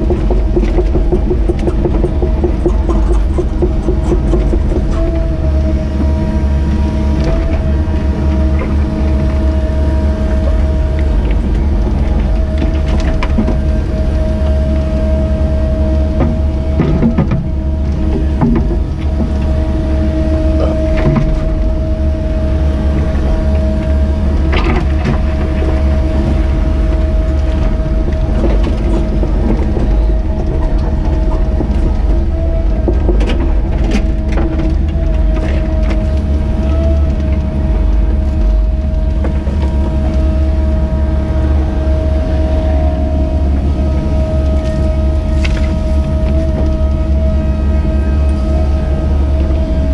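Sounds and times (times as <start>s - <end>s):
excavator diesel engine with whine: 0.0s - 49.9s
clicks and knocks of digging: 0.1s - 5.2s.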